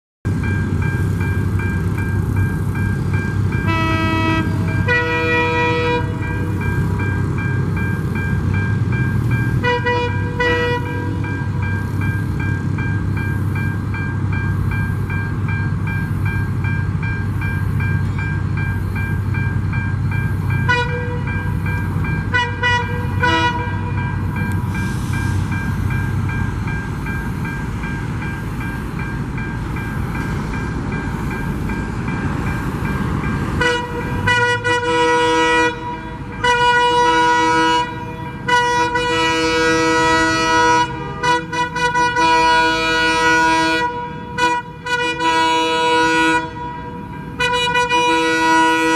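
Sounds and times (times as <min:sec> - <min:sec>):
train rumbling: 0:00.2 - 0:48.9
train horn blasts: 0:03.6 - 0:06.2, 0:09.6 - 0:11.3, 0:20.7 - 0:21.4, 0:22.3 - 0:24.0, 0:33.6 - 0:48.9.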